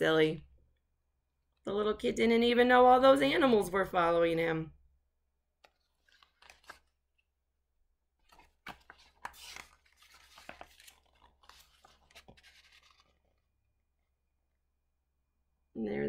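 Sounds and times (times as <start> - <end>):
paper pages rustling: 5.6 - 7.0, 8.2 - 13.4.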